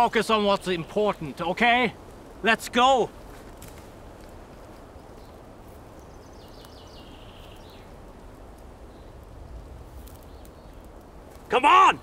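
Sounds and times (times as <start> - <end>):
wind rumble and hiss: 0.0 - 12.0
footsteps through dry grass: 3.0 - 6.7.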